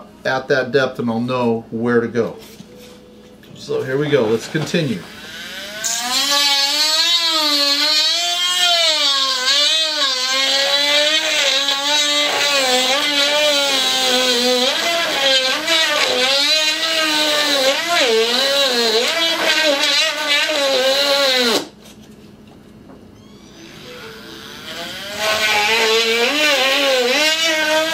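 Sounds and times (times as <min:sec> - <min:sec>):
rotary tool drilling: 0:05.0 - 0:21.7, 0:23.2 - 0:27.9.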